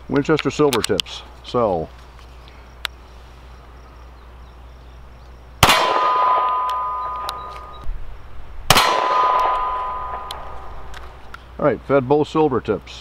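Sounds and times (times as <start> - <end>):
pistol shots: 5.6 - 7.8, 8.7 - 11.0
metallic ring: 6.1 - 7.8, 9.1 - 10.9.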